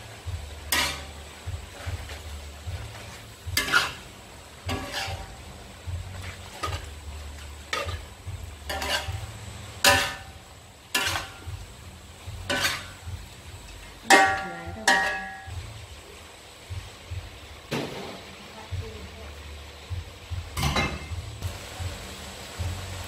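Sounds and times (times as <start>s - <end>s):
metal spatula scraping wok: 0.0s - 15.6s
food sizzling: 0.0s - 23.0s.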